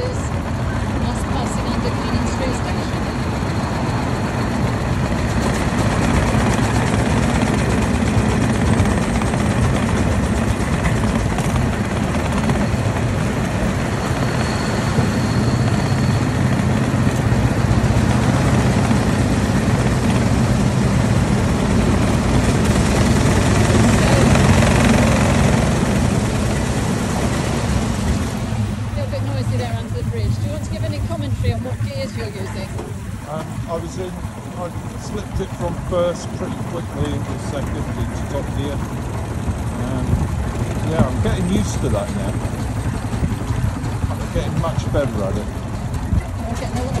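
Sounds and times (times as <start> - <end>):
car engine running: 0.0 - 47.0
road noise: 0.0 - 47.0.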